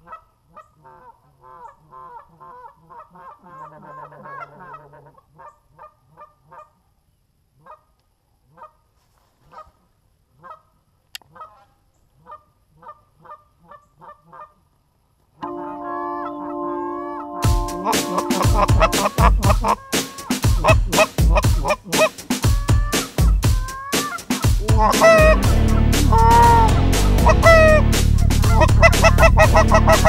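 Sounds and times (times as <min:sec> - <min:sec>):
geese honking: 0:00.9 - 0:06.6, 0:15.4 - 0:30.0
music: 0:15.4 - 0:30.0.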